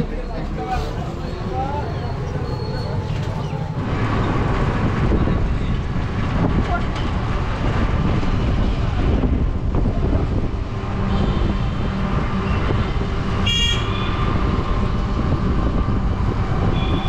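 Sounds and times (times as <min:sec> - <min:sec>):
vehicle rumble and road noise: 0:00.0 - 0:17.0
vehicle horn toot: 0:13.4 - 0:14.3, 0:16.6 - 0:17.0.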